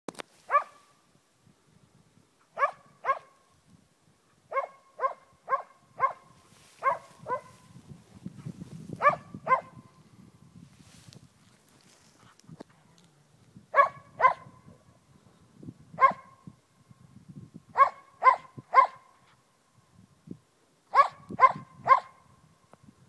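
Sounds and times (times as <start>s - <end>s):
dog barking: 0.5s - 0.9s, 2.6s - 3.4s, 4.5s - 7.6s, 9.0s - 9.8s, 13.8s - 14.6s, 16.0s - 16.4s, 17.8s - 19.1s, 20.9s - 22.2s.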